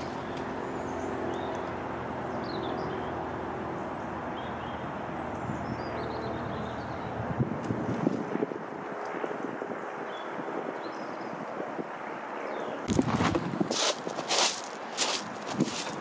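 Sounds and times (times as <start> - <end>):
small birds chirping: 0.0 - 7.2
outdoor background rumble: 0.0 - 8.9, 12.8 - 16.0.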